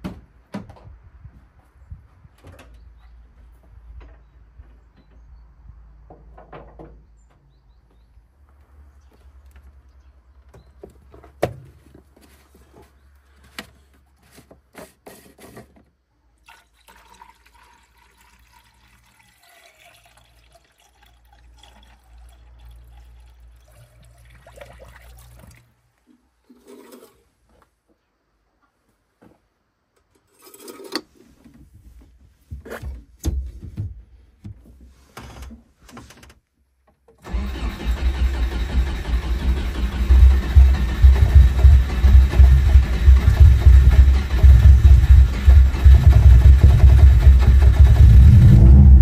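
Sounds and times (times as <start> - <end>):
liquid pouring into container: 16.4 - 25.7.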